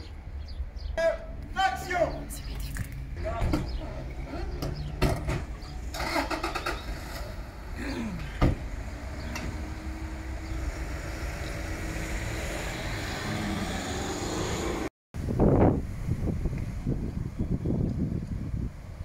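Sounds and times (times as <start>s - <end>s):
car engine starting and running: 2.2s - 14.9s.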